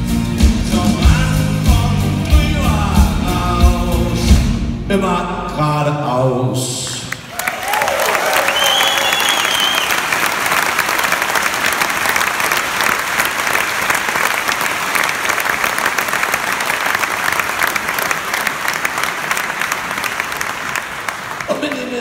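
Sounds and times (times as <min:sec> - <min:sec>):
audience applauding: 0:07.1 - 0:22.0
person whistling: 0:08.5 - 0:10.0.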